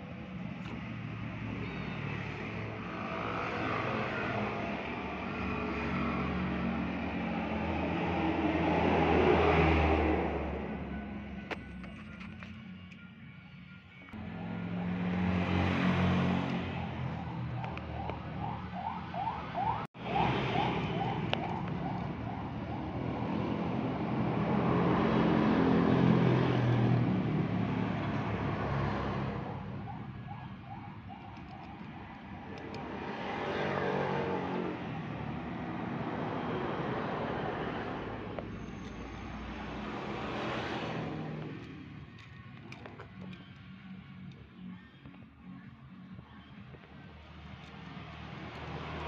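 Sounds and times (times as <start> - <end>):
street noise: 0.0 - 49.0
motor vehicle hum: 14.1 - 49.0
electronic siren whoop: 16.6 - 23.2, 29.7 - 32.3.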